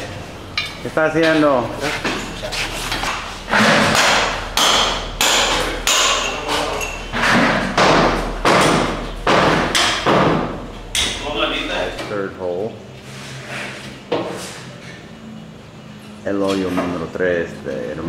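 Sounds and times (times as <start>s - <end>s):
heavy metal tool striking: 3.0s - 12.1s.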